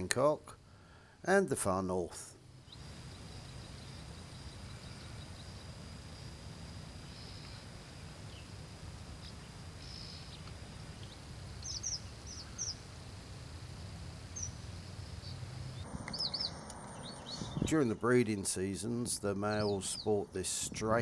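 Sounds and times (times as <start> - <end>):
bird giving high chirps: 11.0 - 12.8, 16.0 - 18.0.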